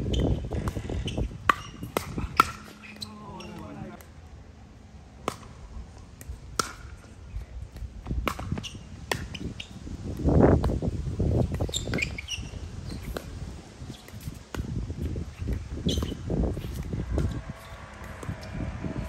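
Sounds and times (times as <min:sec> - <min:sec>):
short high squeaks: 0:11.6 - 0:13.2, 0:15.8 - 0:16.8
muffled rush of noise: 0:15.6 - 0:19.0.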